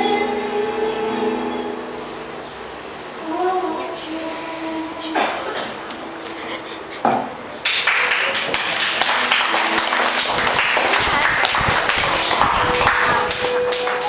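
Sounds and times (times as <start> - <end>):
audience applauding: 7.6 - 14.0.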